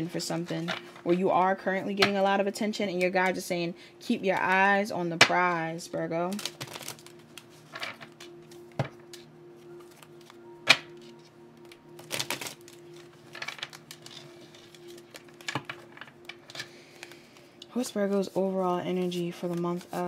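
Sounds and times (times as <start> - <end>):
soft background music: 0.0 - 20.0
cards being shuffled: 6.3 - 20.0.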